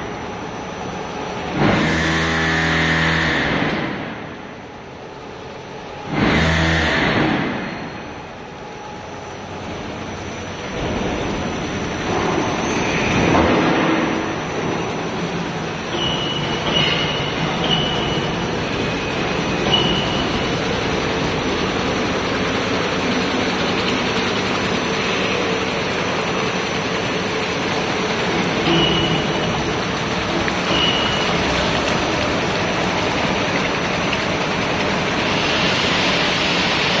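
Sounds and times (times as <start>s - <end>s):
machinery noise: 0.0s - 37.0s
water running: 9.8s - 37.0s.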